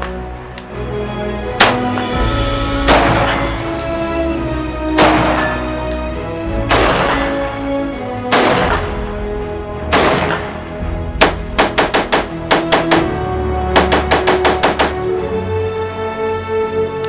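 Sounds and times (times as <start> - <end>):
background music: 0.0 - 17.0
rifle shots with ringing tail: 2.8 - 3.6, 5.0 - 5.7, 8.3 - 9.0, 9.9 - 10.6, 11.2 - 15.0.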